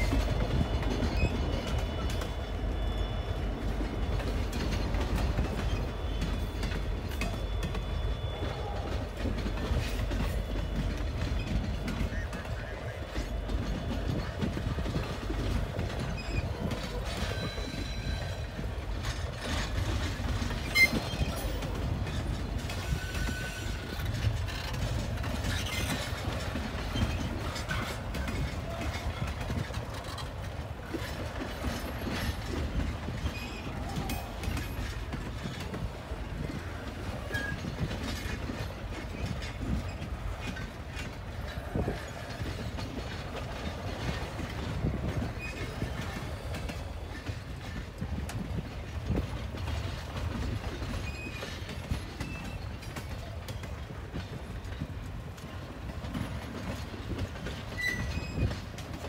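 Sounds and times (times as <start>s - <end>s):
clicks and clanks of railcars: 0.0s - 59.0s
freight train wheels rumbling: 0.0s - 59.0s.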